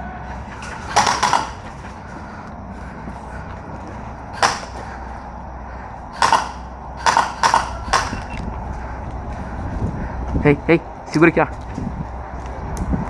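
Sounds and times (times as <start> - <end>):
steady low rumble: 0.0 - 13.0
airsoft gun shots: 0.9 - 1.6, 4.4 - 4.8, 6.1 - 8.3.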